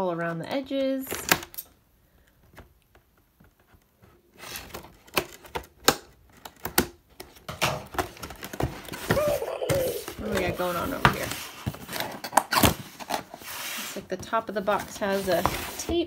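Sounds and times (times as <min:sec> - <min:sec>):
cardboard box handled: 0:08.0 - 0:16.0.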